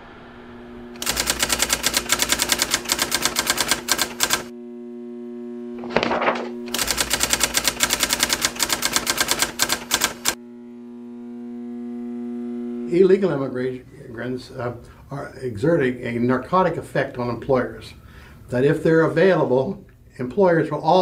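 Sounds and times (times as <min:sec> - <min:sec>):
swell of noise: 0:00.0 - 0:01.0
typewriter keystroke clicks: 0:01.0 - 0:04.5, 0:06.7 - 0:10.4
low steady hum: 0:04.5 - 0:06.8, 0:10.4 - 0:21.0.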